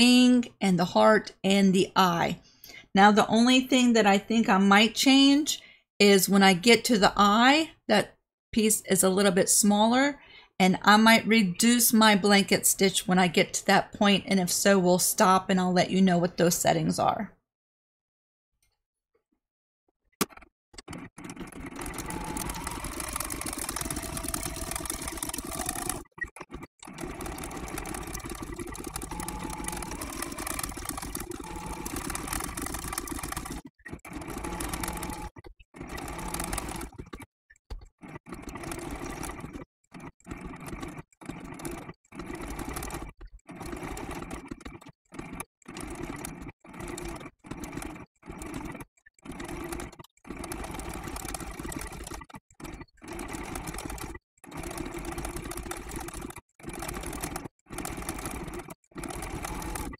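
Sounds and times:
electric sewing machine sewing: 20.3s - 37.3s, 37.9s - 59.9s.

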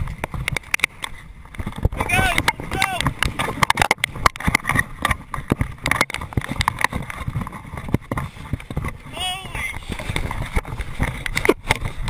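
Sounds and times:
camera jostling: 0.0s - 9.1s
running footsteps on gravel: 0.0s - 12.0s.

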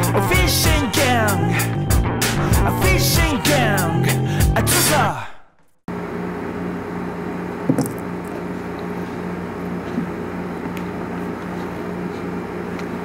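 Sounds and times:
room tone hum and hiss: 5.9s - 13.0s.

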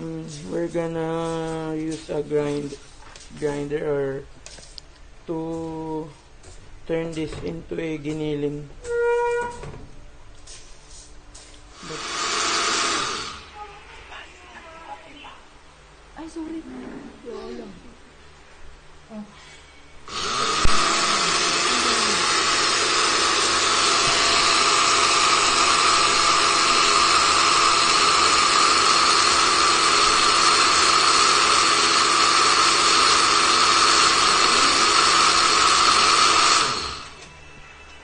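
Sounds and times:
blender grinding rice: 11.8s - 13.5s, 20.1s - 37.2s.

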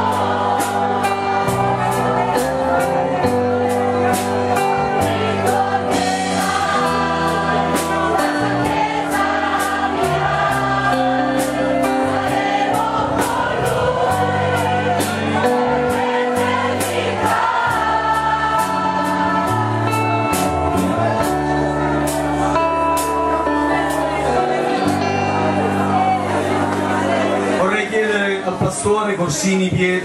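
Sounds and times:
steady drum beat: 0.0s - 23.3s
electric guitar: 0.0s - 27.6s
group singing a gospel hymn: 0.0s - 27.6s
keyboard: 0.0s - 30.0s.

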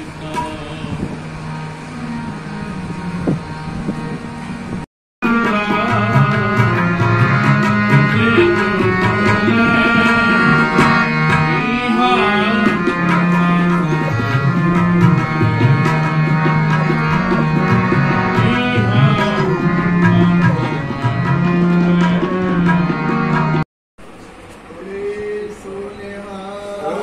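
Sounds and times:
men singing: 0.0s - 1.2s, 5.2s - 23.0s, 24.8s - 27.0s
harmonium sustained notes: 0.0s - 23.6s.

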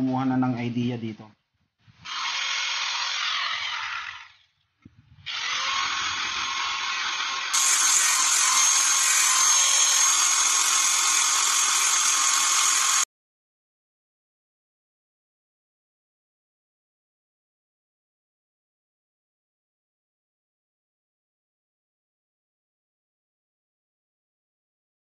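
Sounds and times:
power tool running: 2.0s - 4.5s, 5.2s - 13.1s.

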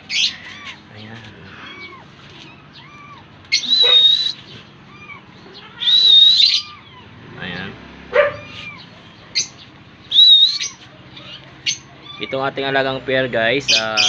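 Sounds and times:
lovebirds shrill calls: 0.0s - 14.0s
lovebirds soft chirps: 8.3s - 14.0s.

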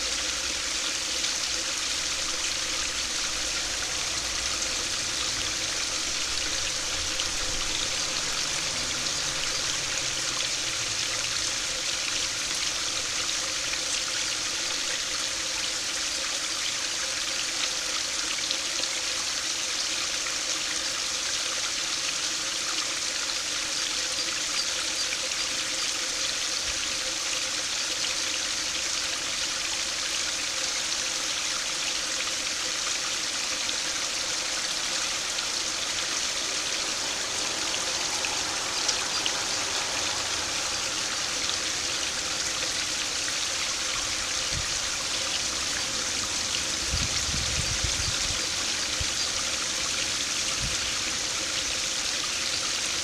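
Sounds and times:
brook splashing over weir: 0.0s - 16.2s, 27.9s - 53.0s.

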